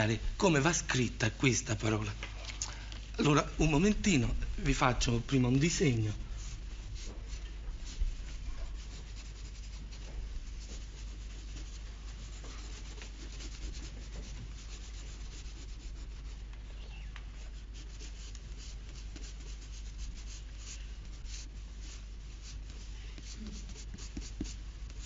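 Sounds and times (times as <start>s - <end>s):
steady low hum: 0.0s - 25.0s
pen scratching on paper: 3.5s - 16.5s, 17.4s - 25.0s.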